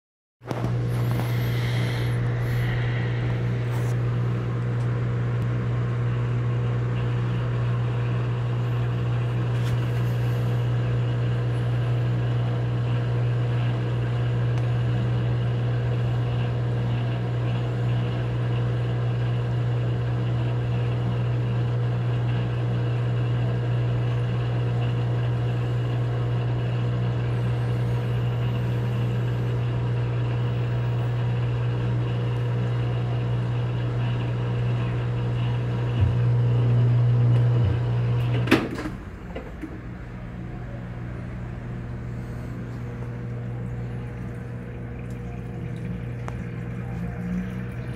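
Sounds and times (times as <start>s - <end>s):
washing machine humming: 0.4s - 47.9s
washing machine click: 38.2s - 39.8s
washing machine knock: 38.4s - 39.8s.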